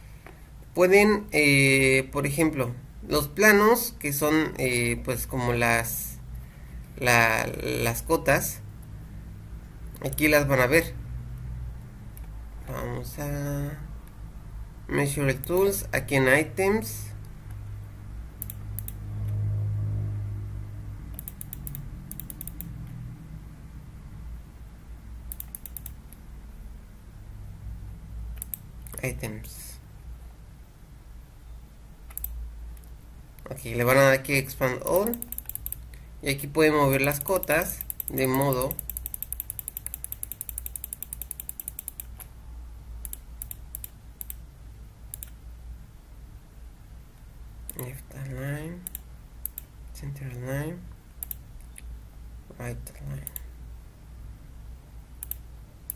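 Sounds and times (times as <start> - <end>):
steady low hum: 0.0 - 55.9
keyboard and mouse clicks: 9.9 - 10.3, 18.4 - 19.4, 21.1 - 23.0, 25.3 - 26.2, 28.3 - 29.1, 32.1 - 33.0, 34.8 - 36.0, 36.8 - 42.3, 43.0 - 44.4, 45.1 - 45.4, 48.8 - 49.7, 51.2 - 51.9, 55.2 - 55.9.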